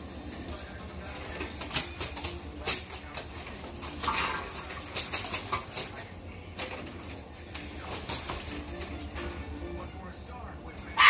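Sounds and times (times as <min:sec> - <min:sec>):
bird flapping: 0:01.0 - 0:09.1.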